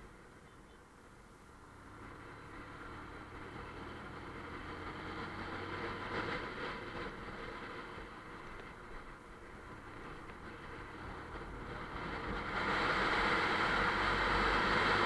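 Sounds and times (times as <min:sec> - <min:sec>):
wind and road noise: 0:00.0 - 0:15.0.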